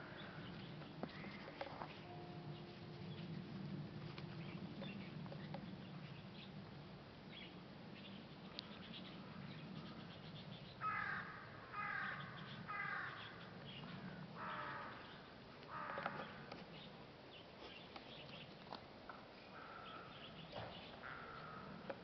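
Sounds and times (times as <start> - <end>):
crow cawing: 10.8 - 13.4, 14.0 - 15.1, 15.7 - 16.5, 19.5 - 20.3, 21.0 - 21.8.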